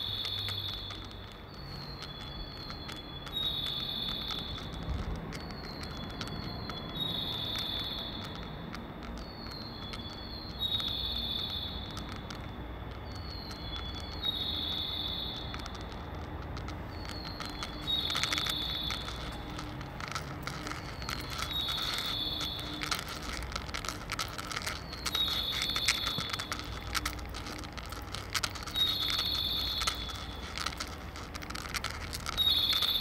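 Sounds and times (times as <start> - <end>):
recorded birdsong over loudspeaker: 0.0 - 11.9, 13.1 - 15.6.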